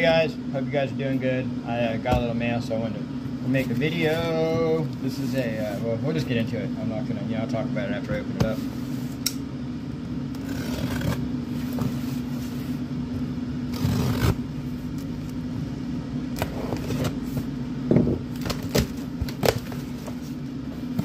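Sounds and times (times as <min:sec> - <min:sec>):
steady low hum: 0:00.0 - 0:21.0
cardboard box scraping and tearing: 0:10.4 - 0:12.5, 0:13.7 - 0:14.4.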